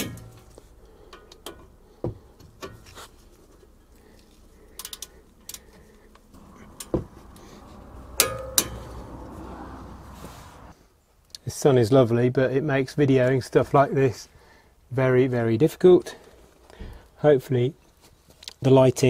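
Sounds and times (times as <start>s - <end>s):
ringing metallic clinks: 8.0s - 9.3s.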